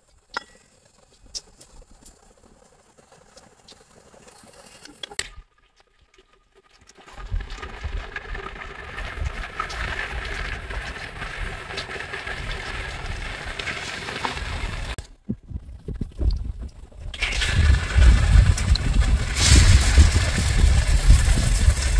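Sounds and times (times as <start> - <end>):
low rumble: 14.4 - 21.9.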